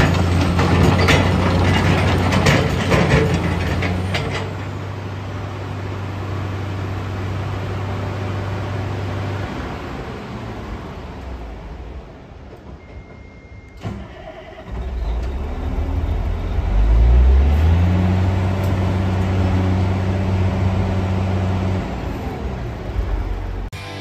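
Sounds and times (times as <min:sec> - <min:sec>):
excavator diesel engine running: 0:00.0 - 0:24.0
short beep: 0:12.8 - 0:13.9.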